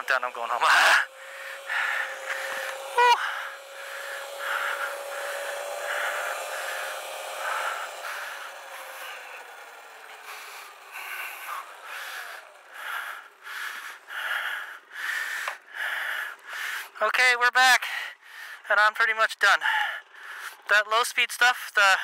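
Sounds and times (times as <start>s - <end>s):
electric motor whine: 0.0s - 16.5s
hard rapid breathing: 0.0s - 17.0s, 17.8s - 18.7s, 19.6s - 20.7s.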